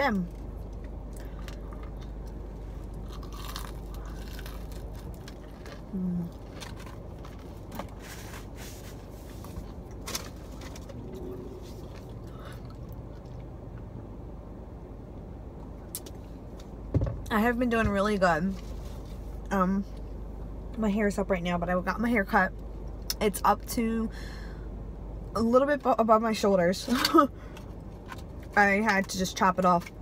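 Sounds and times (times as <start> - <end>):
steady low hum: 0.0 - 30.0
person chewing chicken wing: 3.0 - 8.0.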